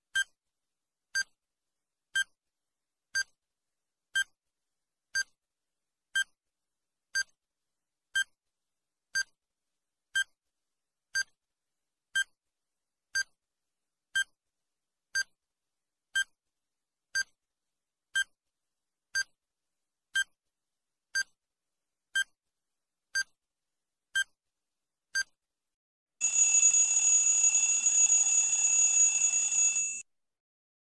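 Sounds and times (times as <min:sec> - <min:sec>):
loud harsh alarm: 0:26.2 - 0:30.0
short electronic beeps: 0:26.2 - 0:30.0.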